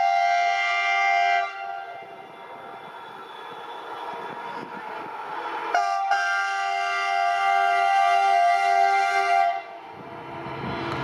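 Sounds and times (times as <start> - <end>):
multi-tone train air horn: 0.0 - 2.9, 5.7 - 9.8
diesel locomotive engine rumble: 0.0 - 11.0.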